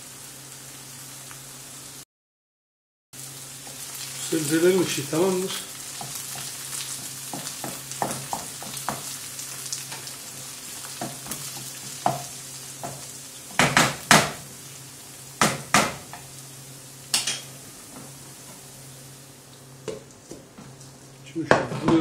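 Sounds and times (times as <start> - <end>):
vegetables sizzling in a frying pan: 0.0 - 2.0, 3.2 - 22.0.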